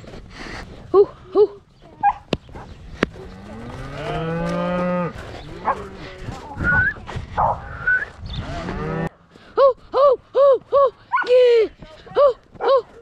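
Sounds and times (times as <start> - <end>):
cow mooing: 3.2 - 6.5.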